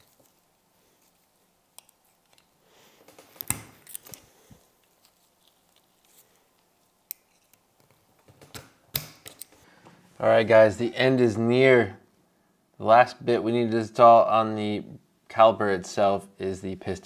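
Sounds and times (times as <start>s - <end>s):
small metal clicks and scrapes: 4.8s - 7.7s.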